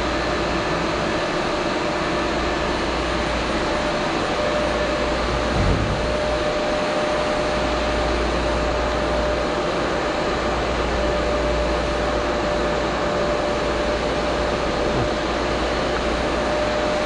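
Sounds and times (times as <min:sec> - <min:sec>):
constant humming tone: 0:03.6 - 0:09.4
machinery droning: 0:04.2 - 0:07.5.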